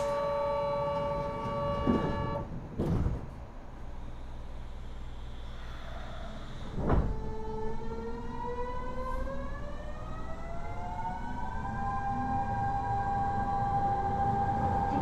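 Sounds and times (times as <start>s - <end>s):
train thump: 0.0s - 4.0s, 6.6s - 7.4s
train inverter hum: 0.0s - 15.0s
rising whining tones: 7.1s - 15.0s.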